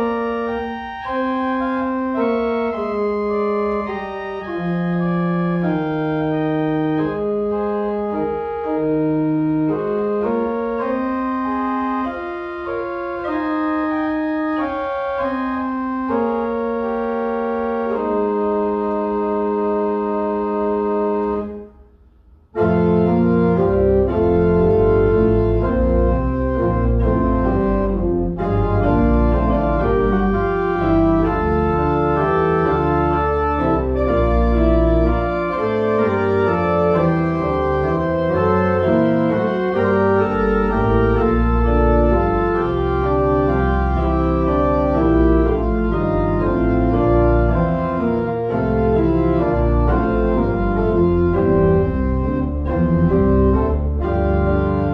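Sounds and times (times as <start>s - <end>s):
pipe organ chords: 0.0s - 54.9s.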